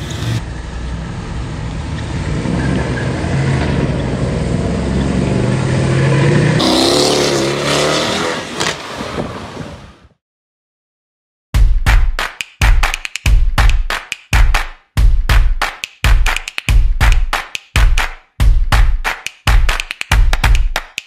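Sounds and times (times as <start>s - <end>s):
car engine accelerating hard: 0.0s - 8.8s.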